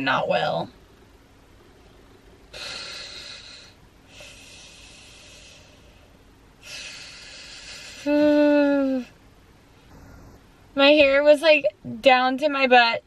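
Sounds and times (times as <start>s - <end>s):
woman breathing heavily: 2.5s - 8.2s.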